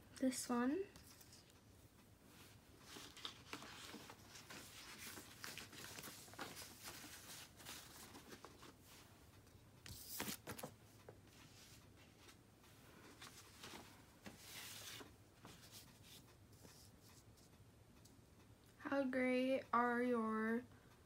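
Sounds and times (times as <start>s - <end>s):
paper brushing: 2.4s - 9.0s, 9.8s - 10.7s, 13.2s - 17.5s
paper rustling on wooden table: 2.8s - 8.8s, 9.9s - 10.7s, 13.2s - 16.2s.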